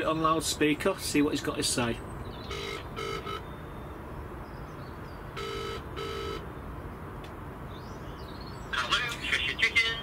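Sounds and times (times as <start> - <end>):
phone double ringing tone: 2.5 - 3.4, 5.4 - 6.4.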